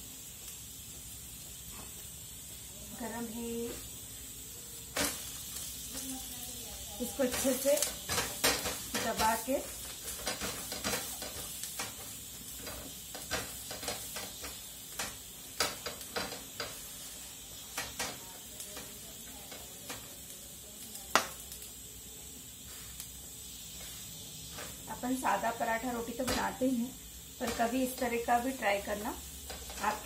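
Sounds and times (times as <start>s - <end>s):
flatbread sizzling in a pan: 0.0s - 30.0s
presser knocking and scraping pan: 7.1s - 16.9s.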